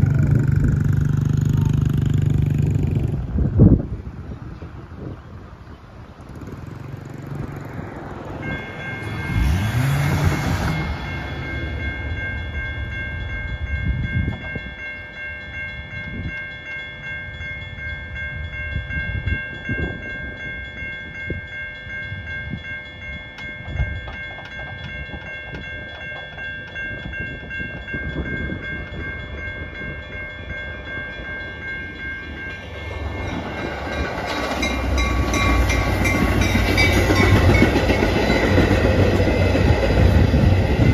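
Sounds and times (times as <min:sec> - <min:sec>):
railroad crossing bell ringing: 0:00.0 - 0:40.9
train rumble: 0:00.0 - 0:40.9
car passing: 0:06.2 - 0:12.7.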